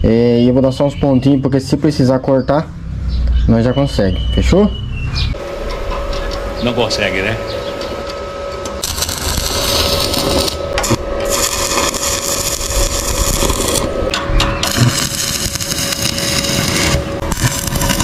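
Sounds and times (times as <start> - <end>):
arc welder crackling and hissing: 5.4 - 18.0.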